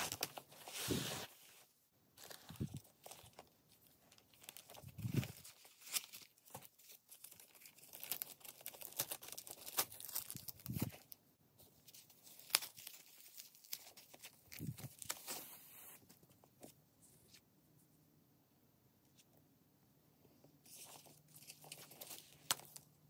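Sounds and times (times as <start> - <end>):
plastic and paper crinkling: 2.2 - 11.2, 20.7 - 23.0.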